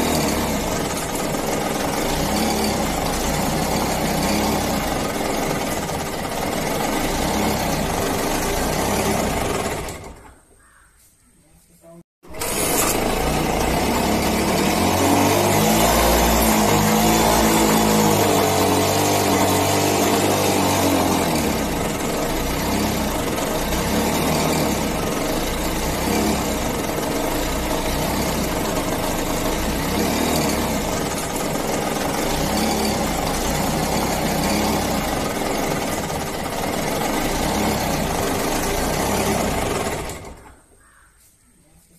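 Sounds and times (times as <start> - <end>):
scooter engine idling: 0.0 - 10.8, 12.3 - 41.0.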